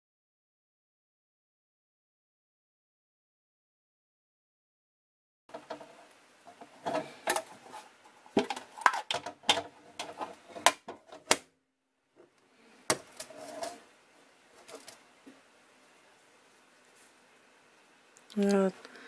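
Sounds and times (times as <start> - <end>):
steel sheet clicks and knocks: 6.5 - 11.5.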